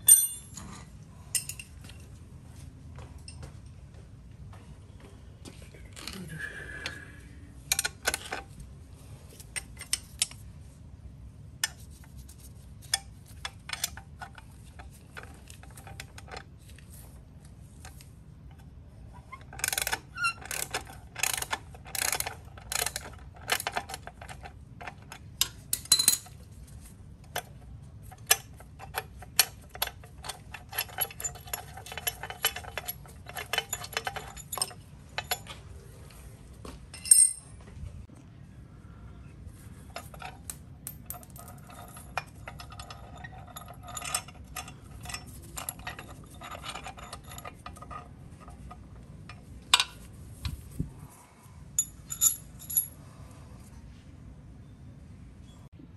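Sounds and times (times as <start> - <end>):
small metal parts clicking: 19.3 - 26.4, 27.3 - 35.5, 39.9 - 50.0.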